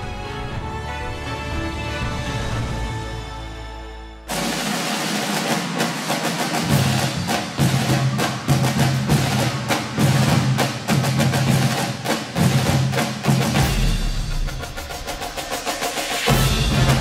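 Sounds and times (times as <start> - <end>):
rapid rhythmic drum hits: 4.3 - 17.0.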